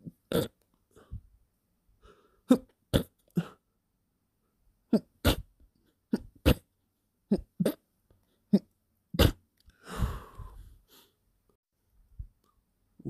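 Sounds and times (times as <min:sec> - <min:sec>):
person sneezing: 0:04.9 - 0:05.5, 0:06.1 - 0:06.7, 0:09.2 - 0:09.4
breathy exhale: 0:09.8 - 0:11.2.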